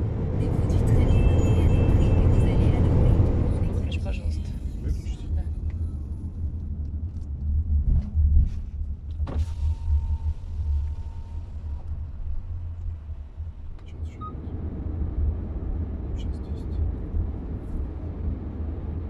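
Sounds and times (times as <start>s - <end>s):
car engine and tyres rumbling: 0.0s - 19.0s
short beep: 9.5s - 11.8s
steady electronic tone: 9.5s - 12.6s.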